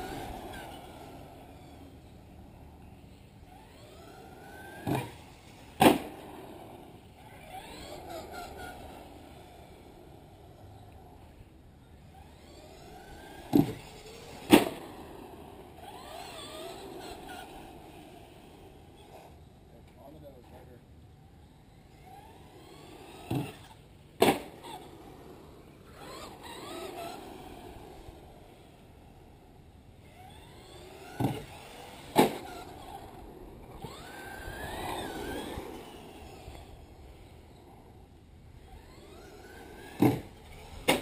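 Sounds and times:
toy truck motor whining: 0.0 - 19.5, 21.5 - 41.0.

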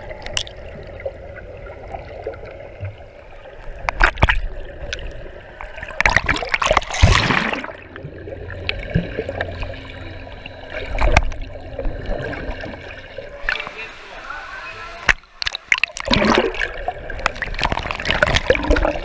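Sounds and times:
muffled underwater wash: 0.0 - 19.0
water splashing: 0.0 - 19.0
bubbles bursting underwater: 4.0 - 9.4, 15.7 - 19.0.

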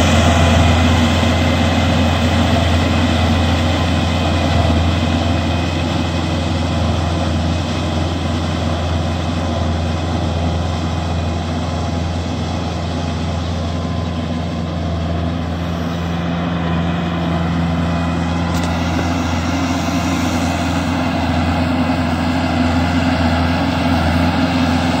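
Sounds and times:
tractor diesel engine under load: 0.0 - 25.0.

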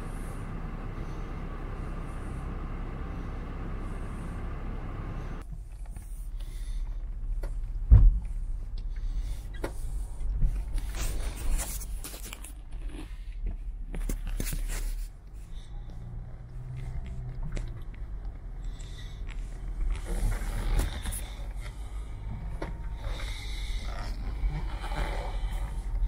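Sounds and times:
car engine and tyre noise: 0.0 - 26.0
branches scraping car paintwork: 10.8 - 12.6, 18.9 - 22.0.

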